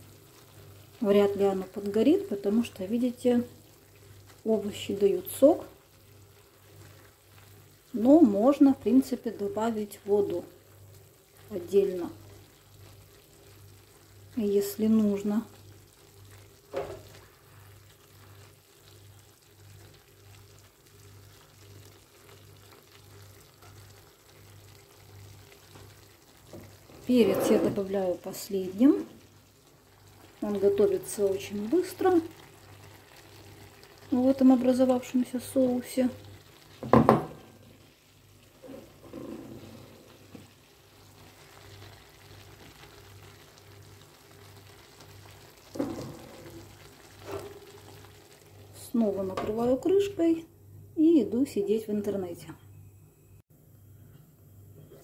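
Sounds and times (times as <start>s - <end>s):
food sizzling and bubbling: 0.0s - 52.5s
utensil knocking on pan: 36.8s - 37.4s
spatula stirring food: 44.8s - 48.6s
pan clattering: 45.7s - 46.6s.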